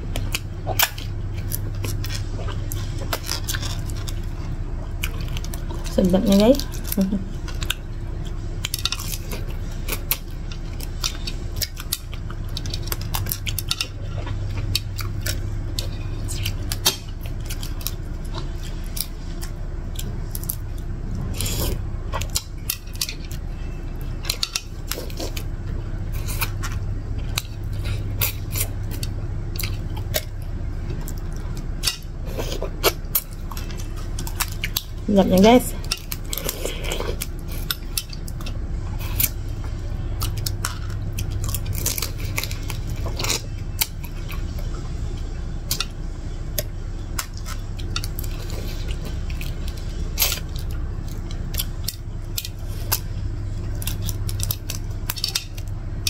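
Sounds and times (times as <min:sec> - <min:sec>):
fried prawn shell cracking: 0:40.3 - 0:44.6, 0:49.2 - 0:56.0.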